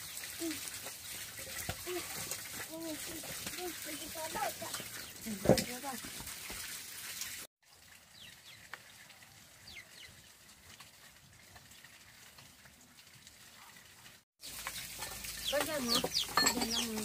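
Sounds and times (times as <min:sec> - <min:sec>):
birds chirping: 0:03.8 - 0:06.0, 0:14.4 - 0:17.0.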